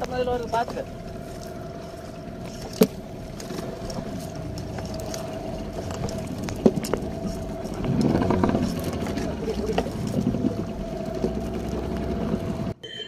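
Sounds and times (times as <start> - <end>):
boat engine idling: 0.0 - 12.8.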